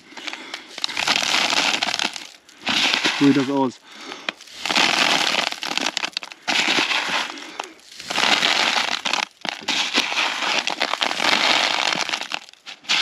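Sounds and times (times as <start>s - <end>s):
breath puffs: 0.0s - 5.3s, 6.3s - 8.6s
husks and grain rustling: 0.0s - 13.0s.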